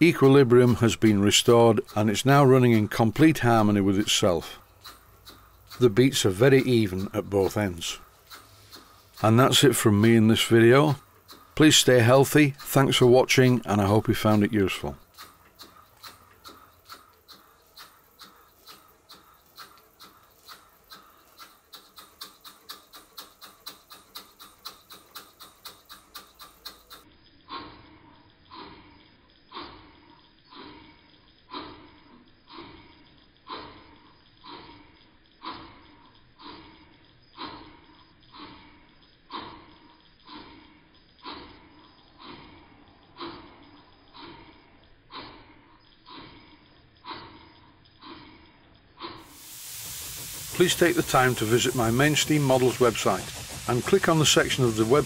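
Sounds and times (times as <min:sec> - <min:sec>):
steam engine exhaust puffing: 0:00.0 - 0:27.0, 0:49.2 - 0:55.0.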